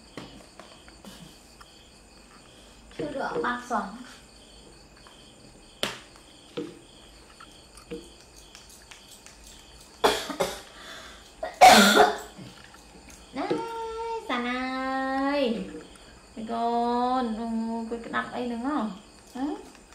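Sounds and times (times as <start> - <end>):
breathy cough-like bursts: 10.0 - 12.6.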